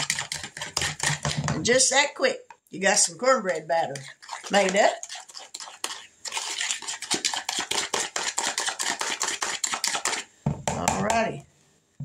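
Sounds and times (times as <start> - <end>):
fork beating batter in bowl: 0.0 - 1.9, 3.5 - 11.4.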